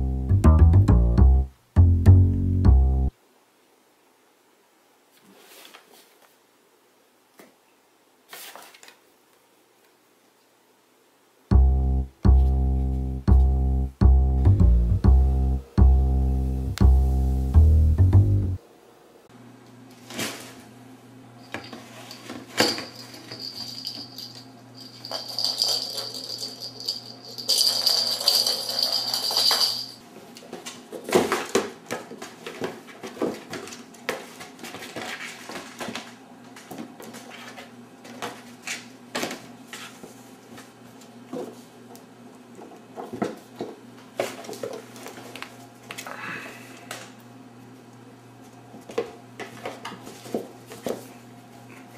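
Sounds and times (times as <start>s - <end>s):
scratchy hiss: 16.2s - 18.6s.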